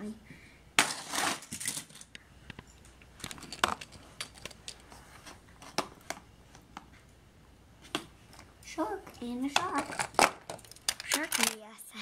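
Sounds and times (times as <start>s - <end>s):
plastic toy cars clattering: 0.8s - 2.2s, 3.2s - 4.9s, 9.5s - 11.7s.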